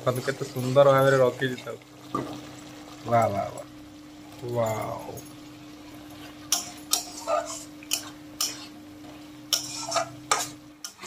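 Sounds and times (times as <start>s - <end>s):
metal spatula scraping a metal pan: 6.5s - 8.8s, 9.5s - 11.0s.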